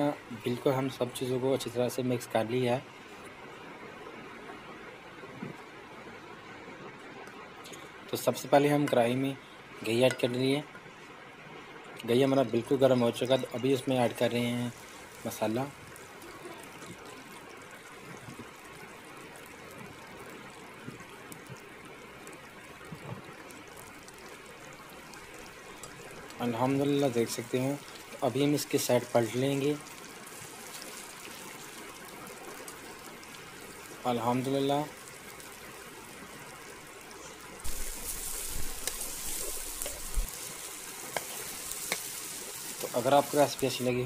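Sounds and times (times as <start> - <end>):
batter sizzling in hot oil: 12.0 - 44.0.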